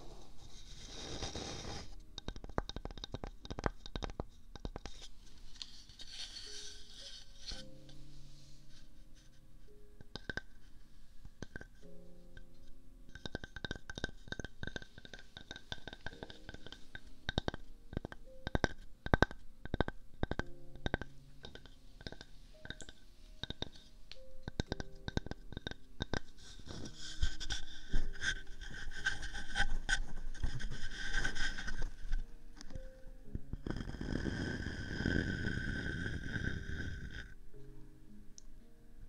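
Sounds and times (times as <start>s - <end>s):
scratching and rubbing on wood: 2.9s - 7.8s, 24.6s - 32.8s.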